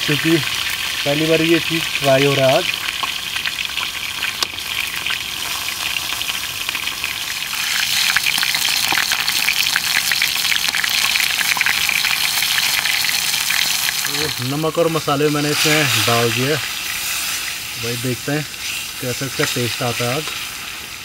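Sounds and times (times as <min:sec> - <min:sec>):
food sizzling in hot oil: 0:00.0 - 0:21.0.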